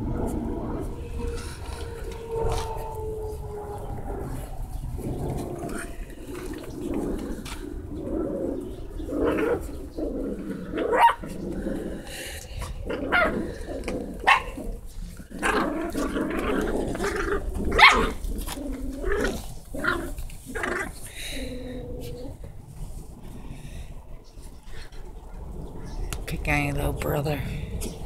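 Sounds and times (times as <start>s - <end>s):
puppies growling: 0.0s - 26.1s
puppies yapping and yipping: 8.6s - 11.5s, 12.9s - 21.0s.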